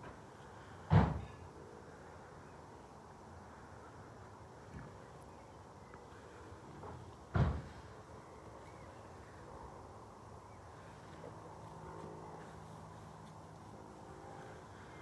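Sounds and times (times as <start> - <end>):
faint outdoor background noise: 0.0 - 15.0
dull thump: 0.9 - 1.3, 7.3 - 7.8.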